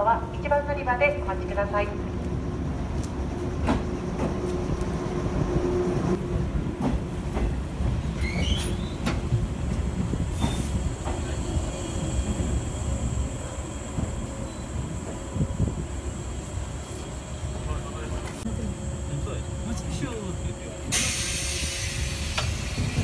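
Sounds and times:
train low rumble: 0.0 - 23.0
wheel squeals: 8.1 - 9.2.

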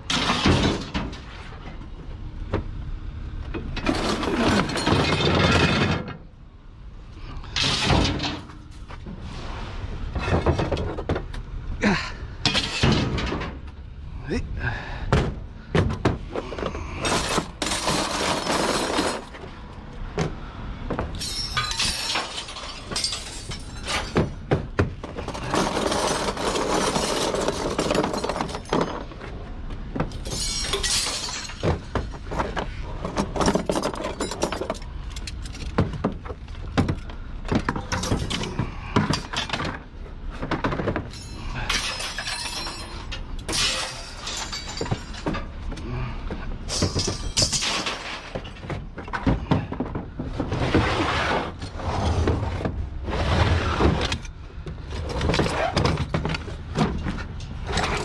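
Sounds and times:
scrap metal clattering crashes: 0.0 - 1.6, 3.6 - 6.3, 7.5 - 8.6, 12.4 - 13.7, 16.9 - 19.4, 21.2 - 29.2, 40.6 - 45.6, 46.6 - 49.8
scrap metal clinking: 17.0 - 19.4, 21.2 - 24.4, 25.1 - 29.2, 41.0 - 45.7.

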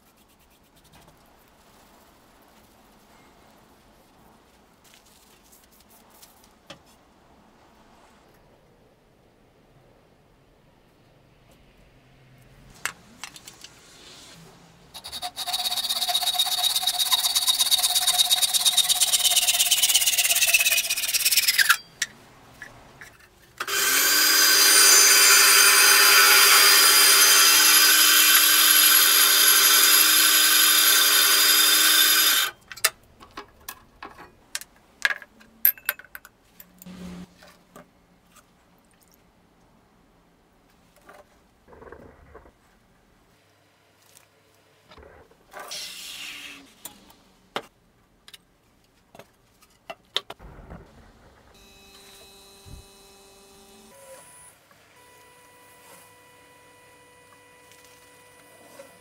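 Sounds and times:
power tool motor whining: 23.6 - 32.5, 51.6 - 54.5.

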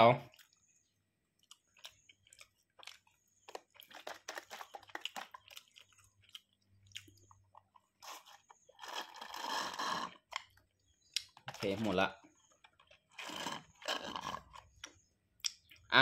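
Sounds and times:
close-up chewing: 0.3 - 11.7.

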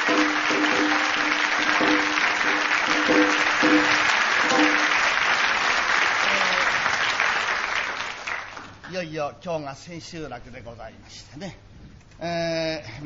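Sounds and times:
plucked shamisen notes: 0.0 - 5.0
audience applause: 0.0 - 8.9.

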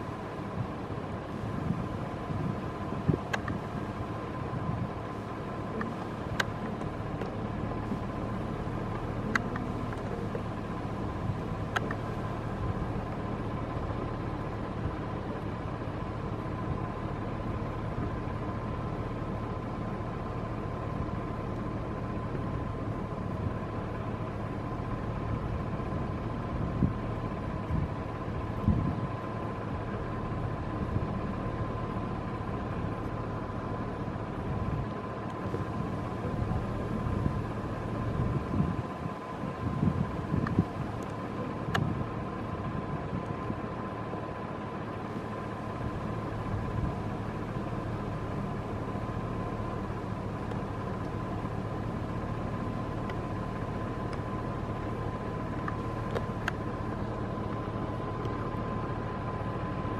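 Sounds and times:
mechanical hum with whine: 0.0 - 59.9
faint clicks: 3.3 - 3.6, 11.7 - 12.0.

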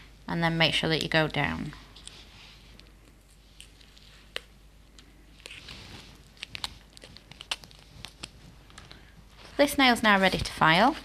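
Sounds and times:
paper crinkling: 5.3 - 9.6.

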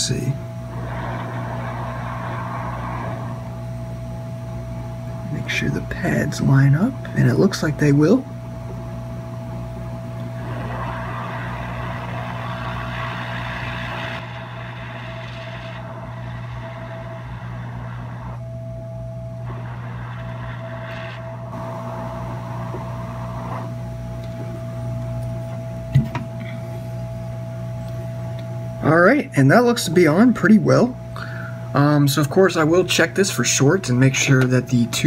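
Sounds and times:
hot air blower hissing: 0.0 - 4.0, 9.8 - 18.4, 19.3 - 24.8
faint steady whine: 0.0 - 35.0
low electrical hum: 0.0 - 35.0.

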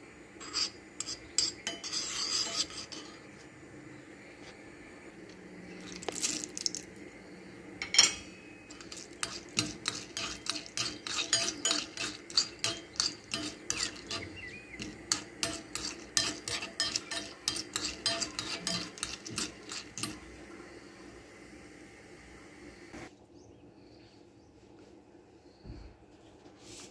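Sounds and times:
spoon scraping berries in a pan: 0.4 - 3.5, 5.6 - 7.0, 7.8 - 20.8.

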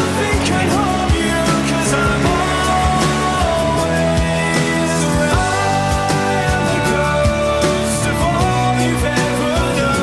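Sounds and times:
song with steady drum beat: 0.0 - 10.0.

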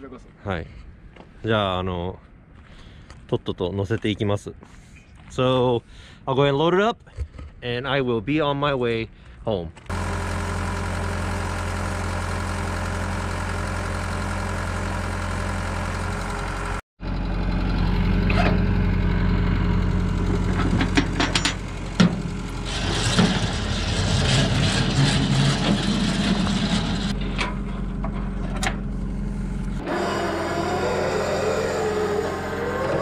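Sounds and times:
diesel truck engine idling: 9.9 - 27.1
metallic clanks of winch cable: 20.3 - 22.2.

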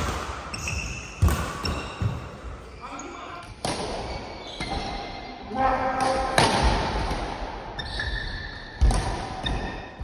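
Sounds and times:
rackets hitting shuttlecock: 0.0 - 2.6, 3.4 - 5.0, 6.0 - 7.5, 8.8 - 9.9
shoes squeaking on court: 0.5 - 3.3.

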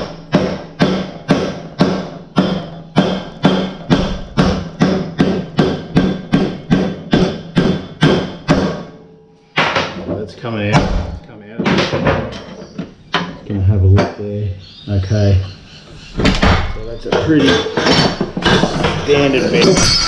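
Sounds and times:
hammer striking metal shaft: 0.0 - 10.0, 16.2 - 20.0.

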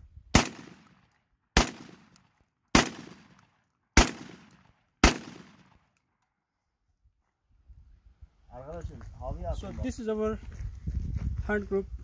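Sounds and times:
shotgun shots: 0.3 - 5.9.

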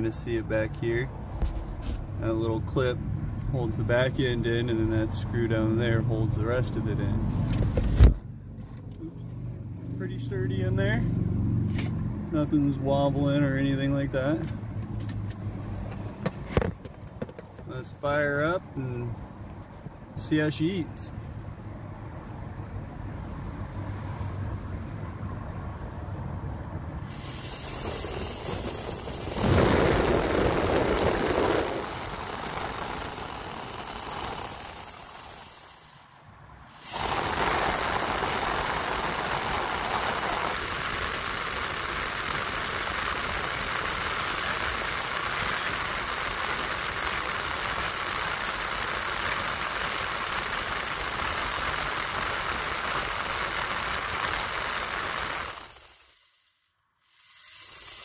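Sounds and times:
blower fan air rush with whine: 26.8 - 56.3.

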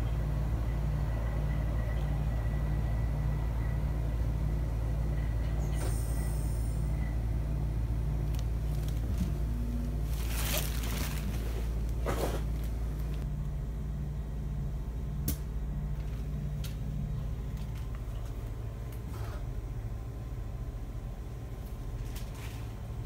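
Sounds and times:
train running hum: 0.0 - 23.0.

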